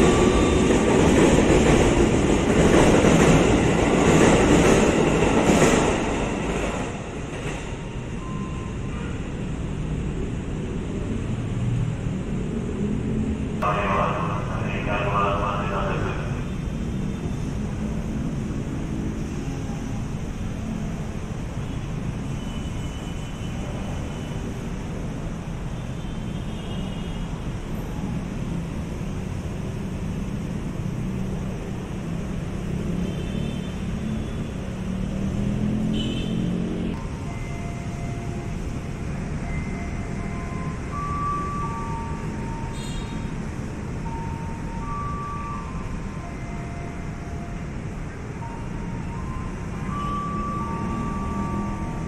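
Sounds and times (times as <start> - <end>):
electric train rumble: 0.0 - 16.7
platform noise: 13.6 - 16.6.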